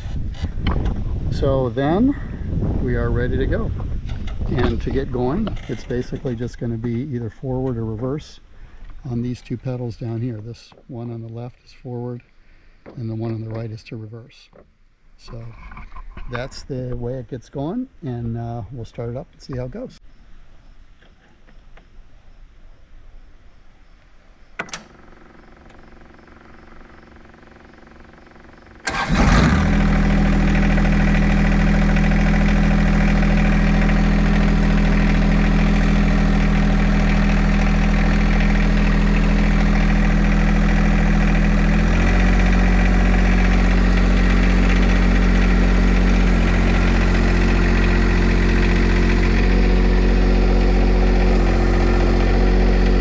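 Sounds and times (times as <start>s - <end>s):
diesel engine cranking: 0.0s - 10.6s, 24.7s - 53.0s
tractor diesel engine running: 0.0s - 10.8s, 25.7s - 53.0s.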